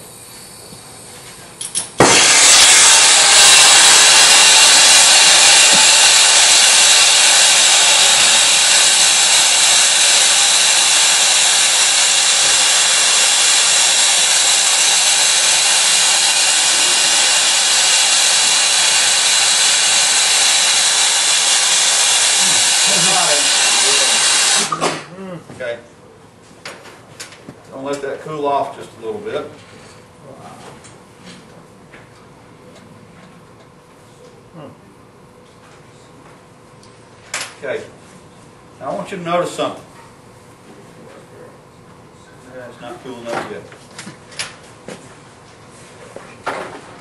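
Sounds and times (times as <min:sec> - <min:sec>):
torch flame hissing: 0:02.0 - 0:25.0.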